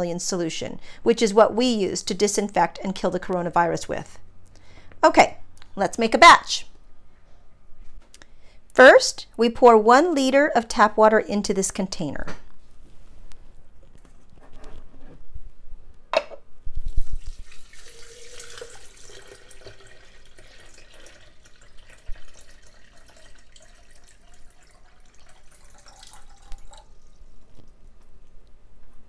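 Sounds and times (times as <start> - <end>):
water pouring into plastic container: 16.9 - 27.4.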